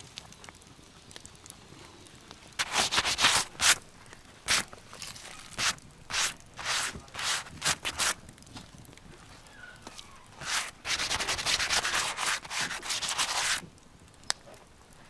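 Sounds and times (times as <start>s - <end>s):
gloved hand rubbing a carcass: 2.6s - 3.8s, 4.5s - 8.2s, 10.4s - 13.6s.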